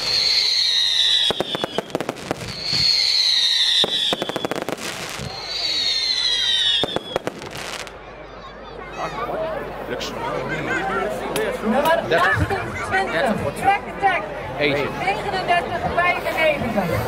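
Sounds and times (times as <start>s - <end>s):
fireworks whistles: 0.0s - 7.9s
fireworks bangs and crackles: 0.0s - 8.0s.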